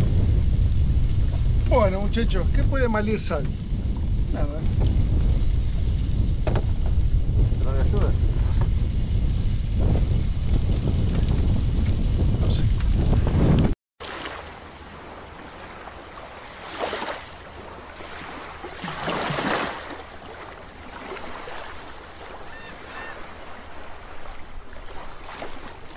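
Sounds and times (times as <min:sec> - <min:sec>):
water washing and lapping: 0:12.8 - 0:25.9.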